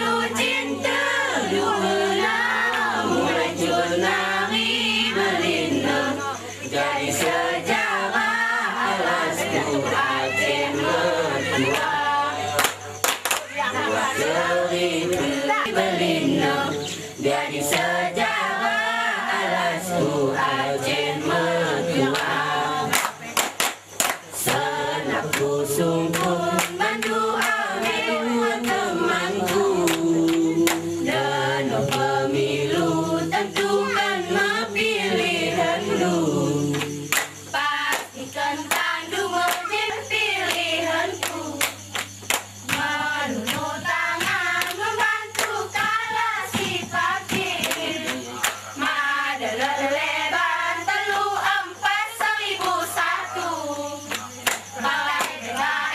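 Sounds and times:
women singing a chant: 0.0s - 55.9s
hand claps: 11.5s - 13.9s, 17.7s - 18.0s, 22.1s - 32.2s, 33.6s - 34.0s, 36.7s - 49.0s, 54.0s - 55.8s.

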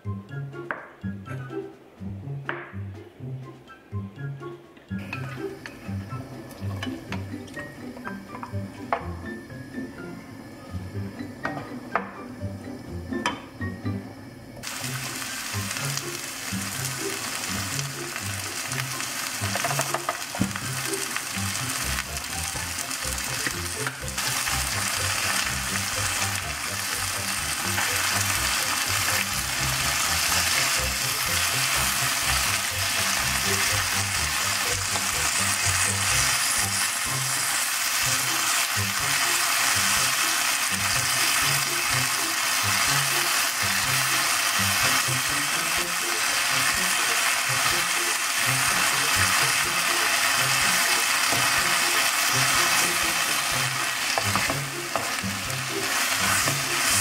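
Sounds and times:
food sizzling in oil: 14.6s - 57.0s.

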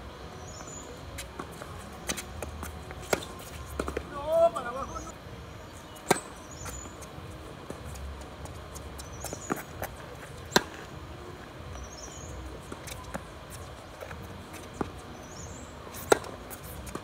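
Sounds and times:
tennis balls bouncing on hard court: 0.6s - 5.1s, 6.0s - 11.0s, 11.7s - 17.0s
rackets striking tennis balls: 1.2s - 5.1s, 6.0s - 11.0s, 12.6s - 17.0s.

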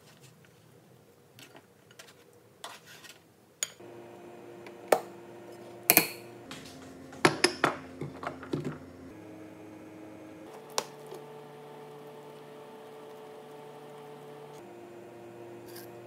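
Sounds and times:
steady low hum: 3.8s - 16.0s.

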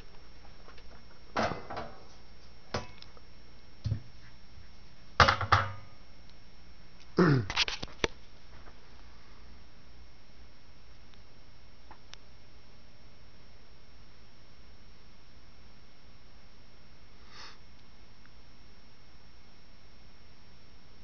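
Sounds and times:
metal cover clunks: 1.4s - 2.0s.

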